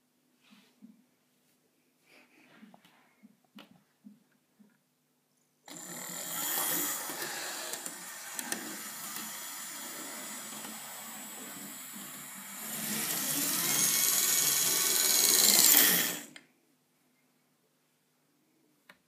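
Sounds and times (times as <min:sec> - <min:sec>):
model train motor whirring: 0:05.7 - 0:16.4.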